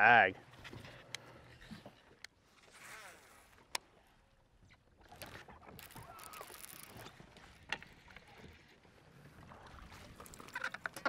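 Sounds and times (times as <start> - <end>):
knocks and scraping on boat deck: 0.5 - 2.8.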